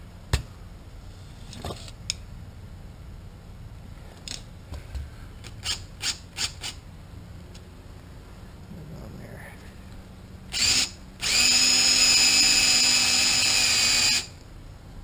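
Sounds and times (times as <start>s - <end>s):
drill chuck rasping: 10.5s - 14.3s.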